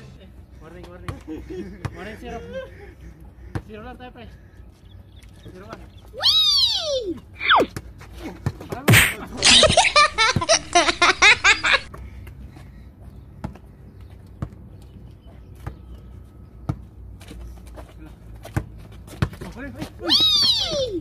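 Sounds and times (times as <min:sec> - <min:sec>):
loud sharp hit: 0:08.9 - 0:09.6
loud laughter: 0:09.0 - 0:11.9
basketball bouncing on concrete: 0:13.4 - 0:13.7, 0:14.3 - 0:14.7, 0:16.6 - 0:16.9, 0:18.4 - 0:20.1.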